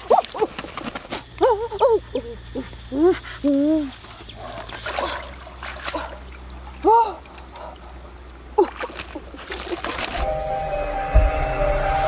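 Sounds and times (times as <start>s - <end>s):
wings flapping and rustling: 0.0s - 1.4s.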